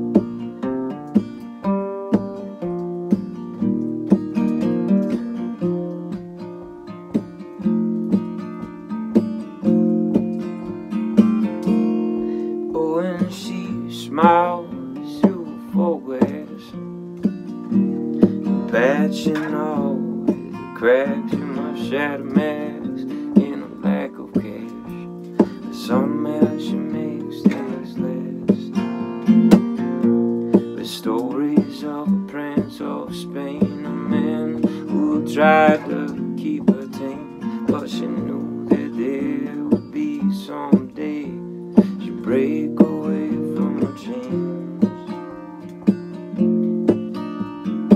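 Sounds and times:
acoustic guitar strumming chords: 0.0 - 47.9
man singing: 11.4 - 16.9, 18.3 - 29.6, 30.5 - 45.7.

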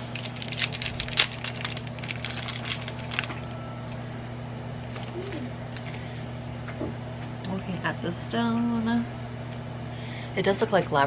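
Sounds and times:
plastic packaging crinkling: 0.0 - 4.0, 4.8 - 6.0
low hum: 0.0 - 10.4.

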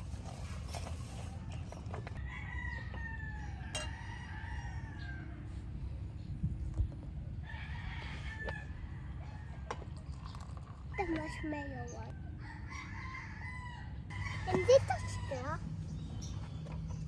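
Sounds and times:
rooster crowing: 2.2 - 5.5, 7.4 - 9.8, 11.3 - 15.6.

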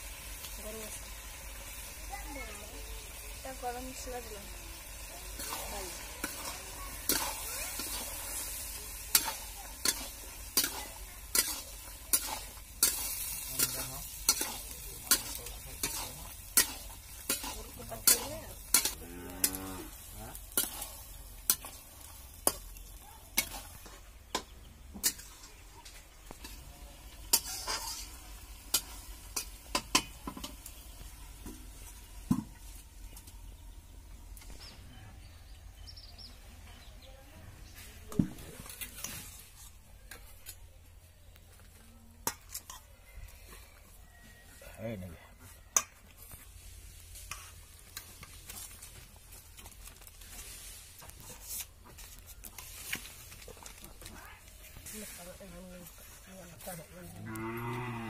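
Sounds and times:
light sizzle of frying: 0.0 - 58.0
metal spatula scraping a pan: 5.0 - 26.6, 27.2 - 30.6, 38.5 - 40.6, 42.2 - 42.9.

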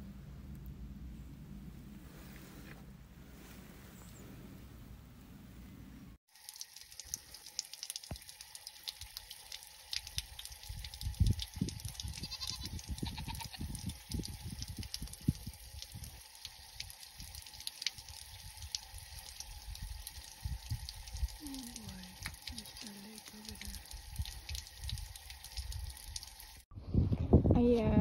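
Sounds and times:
goat bleating: 12.2 - 13.6.

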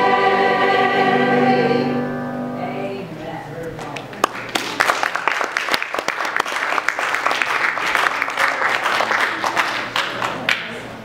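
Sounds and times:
audience applauding: 3.8 - 10.9.

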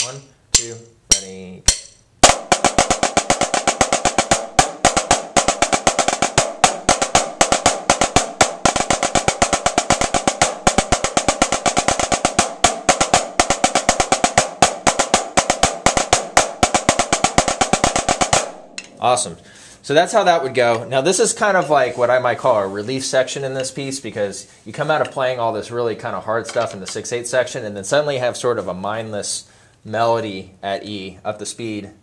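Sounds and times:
snare drums playing: 0.0 - 19.2.

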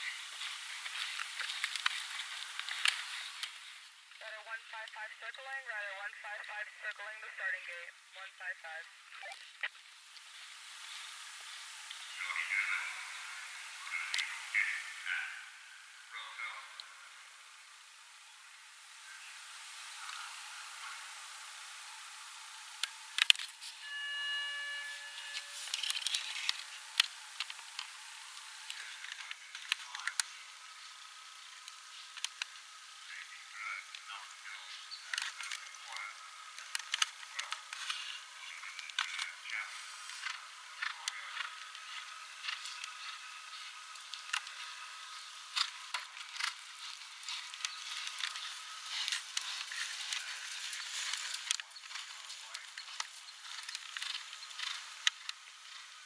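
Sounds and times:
steady hiss: 0.0 - 56.0
steady high tone: 10.6 - 31.7.

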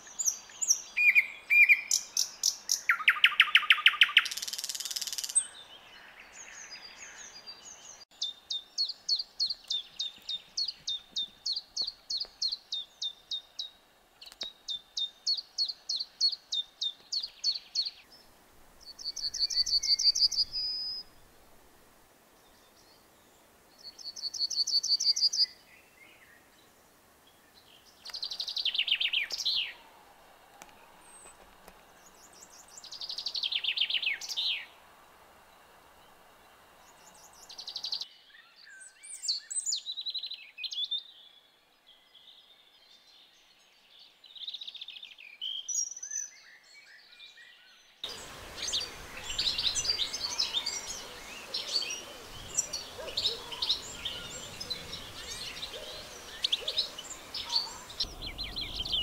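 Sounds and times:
bird song with rapid clicks and rattles: 2.9 - 5.4
bird singing fast trills: 18.8 - 21.1, 48.2 - 59.0
bird singing falling trill: 48.1 - 59.0.

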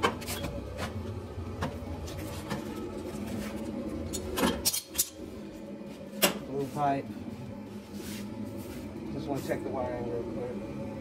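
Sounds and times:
furnace motor hum: 0.0 - 11.0.

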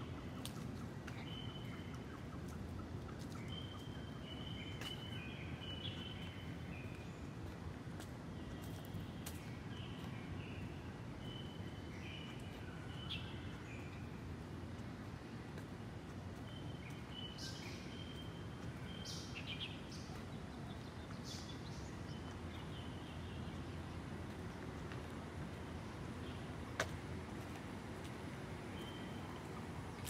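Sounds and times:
low outdoor rumble: 0.0 - 30.0
birds chirping: 16.0 - 26.8.

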